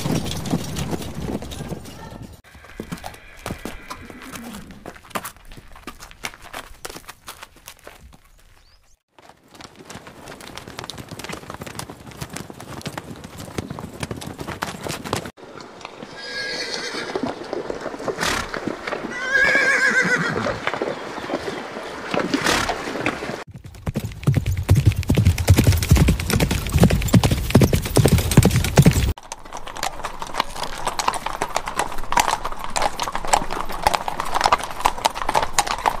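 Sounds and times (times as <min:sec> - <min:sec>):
hooves clip-clopping on pavement: 0:00.0 - 0:36.0
horse galloping on dirt: 0:00.0 - 0:36.0
horse hooves clopping: 0:00.0 - 0:36.0
horse whinnies: 0:02.5 - 0:04.9, 0:16.1 - 0:17.4, 0:18.2 - 0:20.7.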